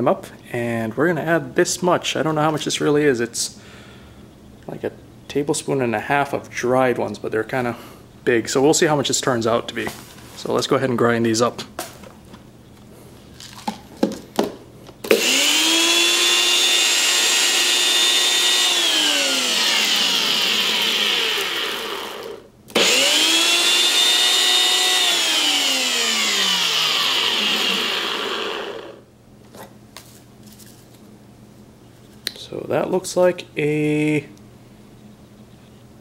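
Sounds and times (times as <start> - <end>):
blender motor whining: 15.1 - 29.0.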